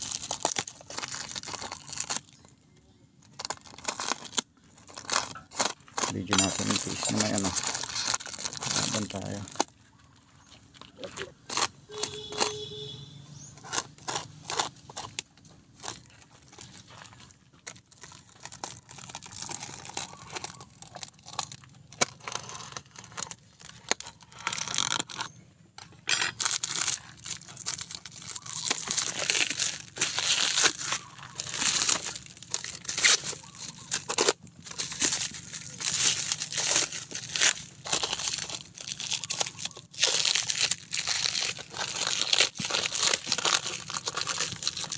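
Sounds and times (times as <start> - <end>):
plastic tearing and crinkling: 0.0 - 44.9
plastic wrap being slit: 3.4 - 9.7, 26.3 - 44.9.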